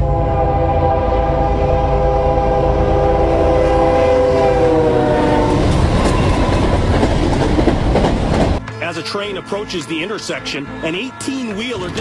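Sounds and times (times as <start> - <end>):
locomotive air horn: 0.0 - 6.6
train rumble: 0.0 - 10.0.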